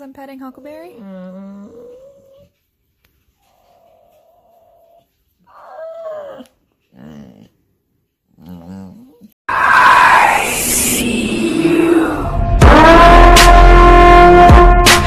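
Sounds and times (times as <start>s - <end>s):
dog whining and grumbling: 0.4s - 2.6s, 3.4s - 7.6s, 8.3s - 9.4s.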